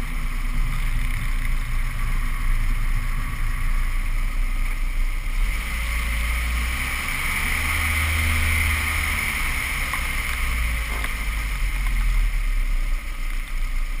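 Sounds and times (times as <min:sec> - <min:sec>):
car engine running: 0:00.0 - 0:14.0
tyre noise: 0:05.4 - 0:12.5.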